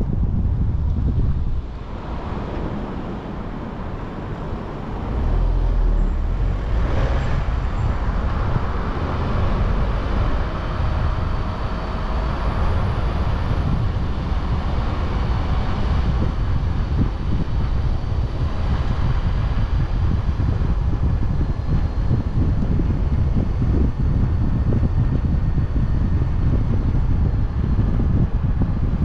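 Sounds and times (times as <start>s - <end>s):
road noise low rumble: 0.0s - 29.0s
wind on microphone: 0.0s - 29.0s.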